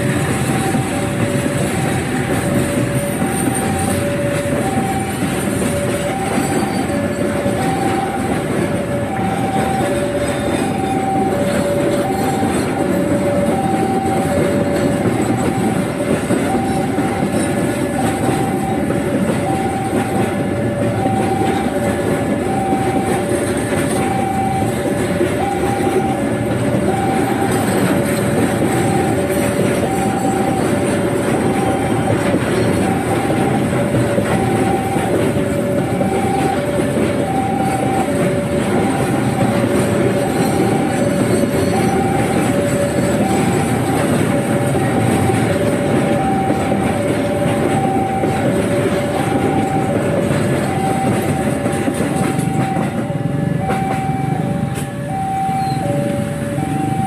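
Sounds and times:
freight train rolling: 0:00.0 - 0:57.0
two-tone crossing alarm chime: 0:00.0 - 0:57.0
wheels clacking on rail joints: 0:00.0 - 0:57.0.

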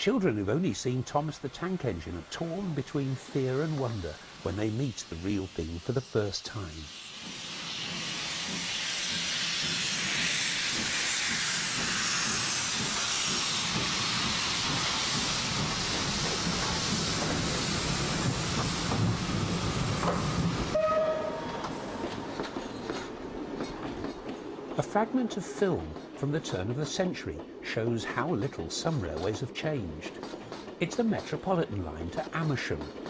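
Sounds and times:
steam locomotive hissing: 0:00.0 - 0:33.0
train whistle: 0:20.7 - 0:22.3.

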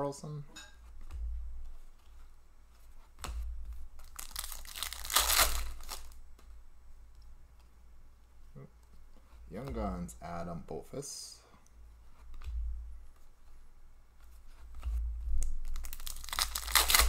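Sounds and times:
foil wrapper tearing and crinkling: 0:04.0 - 0:06.2, 0:15.4 - 0:17.0.

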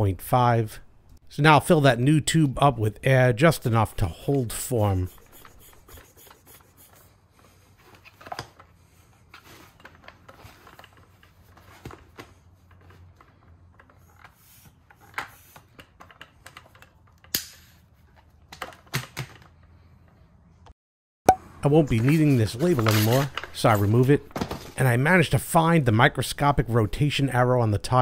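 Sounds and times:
pump head clicking and rubbing: 0:04.8 - 0:07.0.

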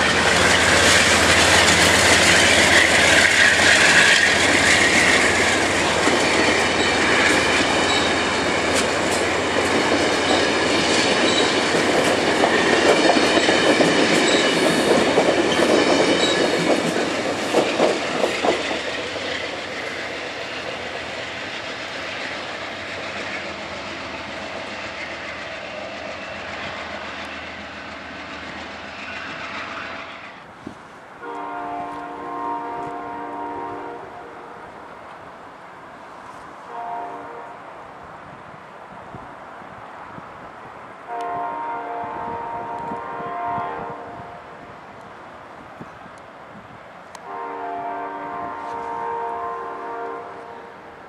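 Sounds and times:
train wheels clacking over rail joints: 0:00.0 - 0:32.1
passing train rumble: 0:00.0 - 0:51.0
locomotive horn chord: 0:31.2 - 0:34.6, 0:36.7 - 0:37.6, 0:41.1 - 0:44.2, 0:47.2 - 0:50.7.

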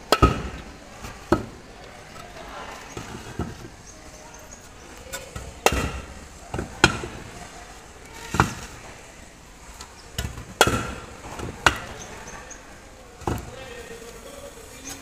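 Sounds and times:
hammer striking concrete blocks: 0:00.0 - 0:03.8, 0:05.2 - 0:07.5, 0:08.1 - 0:08.9, 0:10.1 - 0:12.4, 0:13.0 - 0:13.8
blocks knocked and set down: 0:00.0 - 0:07.4, 0:08.1 - 0:09.0, 0:09.8 - 0:12.4, 0:13.1 - 0:13.8.

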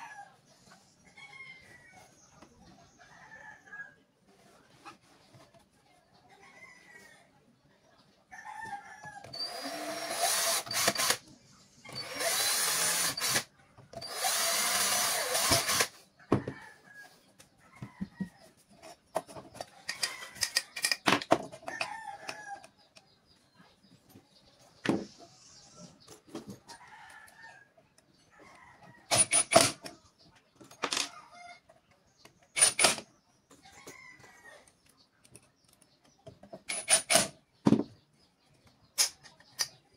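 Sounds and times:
cordless drill running: 0:09.3 - 0:11.2, 0:11.9 - 0:15.9
chickens clucking faintly: 0:15.9 - 0:36.7.

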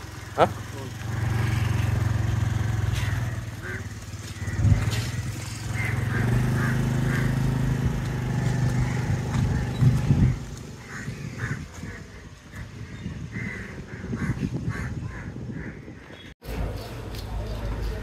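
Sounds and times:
small engine running: 0:00.0 - 0:11.6.

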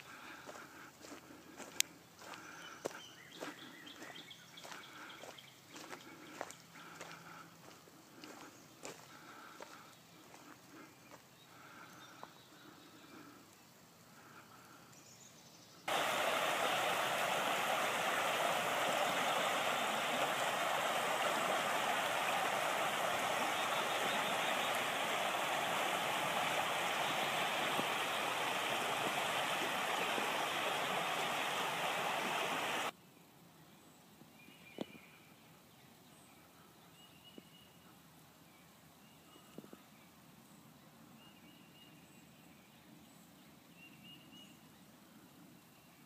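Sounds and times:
creek water rushing: 0:15.9 - 0:32.9.

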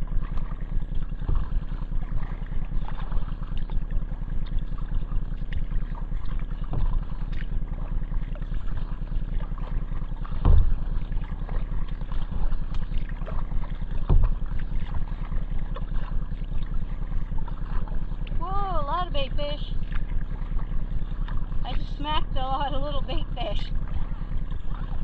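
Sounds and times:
water noise from hull: 0:00.0 - 0:25.0
dull thumps: 0:10.3 - 0:11.0, 0:14.0 - 0:15.0.

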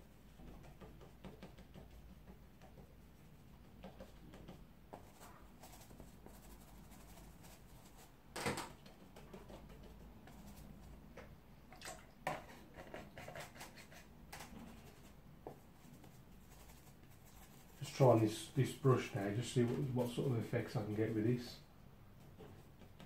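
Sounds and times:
brush scraping: 0:12.4 - 0:21.5.

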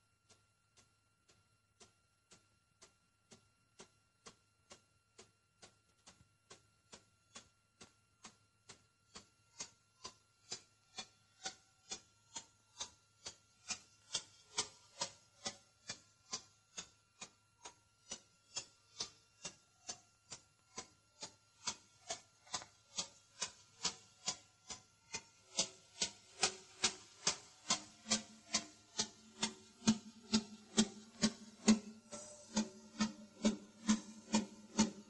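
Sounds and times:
clock-like ticking: 0:00.0 - 0:35.0.

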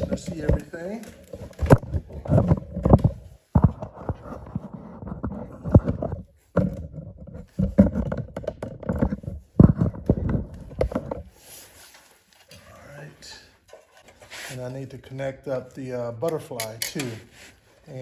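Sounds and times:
knocks and clunks of handled parts: 0:00.0 - 0:12.0.

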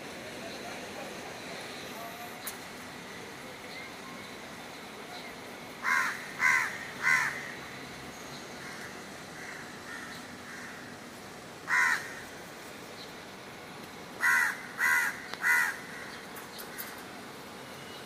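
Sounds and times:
crow cawing: 0:05.8 - 0:07.6, 0:08.6 - 0:11.0, 0:11.6 - 0:12.3, 0:14.2 - 0:17.0.

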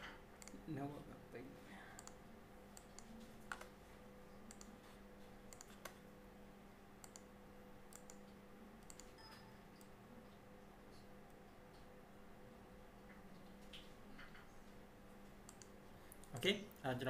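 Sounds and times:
steady low hum: 0:00.0 - 0:17.0
computer mouse clicks: 0:00.4 - 0:00.6, 0:02.0 - 0:02.2, 0:02.8 - 0:03.7, 0:04.5 - 0:04.8, 0:05.5 - 0:06.0, 0:07.0 - 0:07.3, 0:07.9 - 0:09.9, 0:15.5 - 0:16.4.

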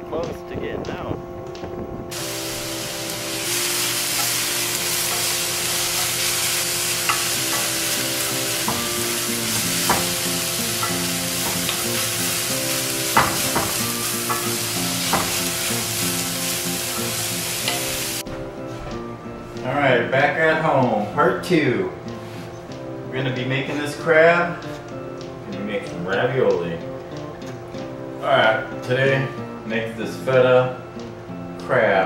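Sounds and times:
greens sizzling in a skillet: 0:02.1 - 0:18.2.

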